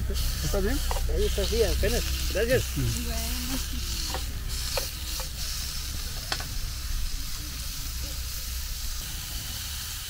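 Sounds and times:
food sizzling in frying pan: 0:00.0 - 0:10.0
utensil clicking against pan: 0:00.8 - 0:01.1, 0:04.0 - 0:05.4.

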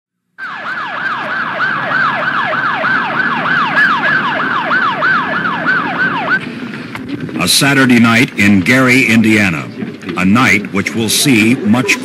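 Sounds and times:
emergency vehicle siren: 0:00.4 - 0:07.4.

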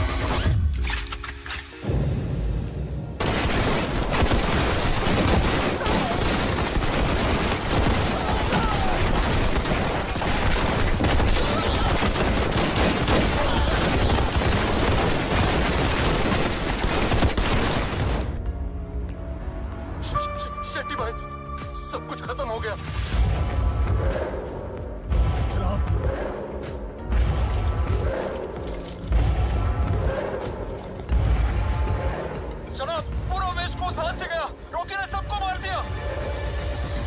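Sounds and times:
machine gun firing: 0:03.2 - 0:18.3.

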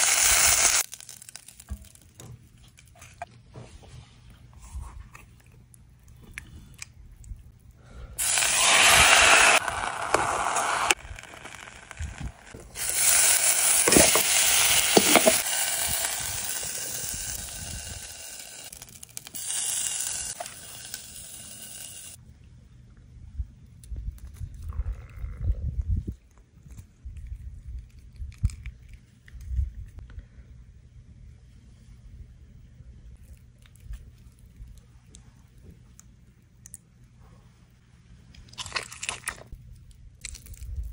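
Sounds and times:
taco sizzling in a pan: 0:00.0 - 0:02.0, 0:08.2 - 0:22.2
crunching bite of taco: 0:38.4 - 0:40.9.

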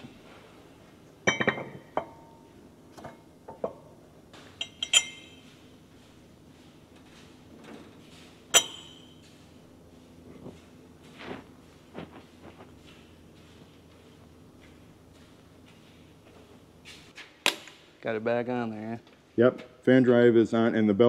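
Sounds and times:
metal clinks and knocks: 0:01.2 - 0:03.8, 0:04.4 - 0:05.6, 0:08.5 - 0:09.4.

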